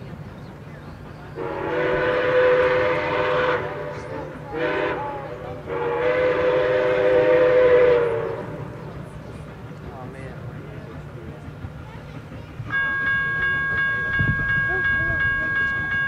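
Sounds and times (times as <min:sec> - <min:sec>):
locomotive horn chime: 0:01.4 - 0:05.0.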